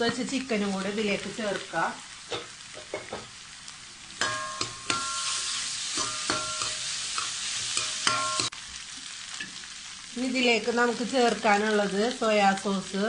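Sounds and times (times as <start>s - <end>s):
rice sizzling in a metal pan: 0.0s - 13.0s
spoon clinking against pan: 4.2s - 8.5s
spoon stirring and scraping: 4.2s - 8.6s.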